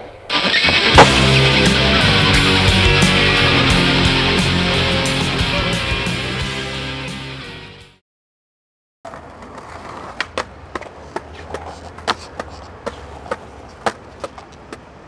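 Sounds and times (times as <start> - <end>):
background music: 0.3 - 8.0
skateboard clacks: 9.1 - 15.0
skateboard wheels rumbling: 9.1 - 15.0.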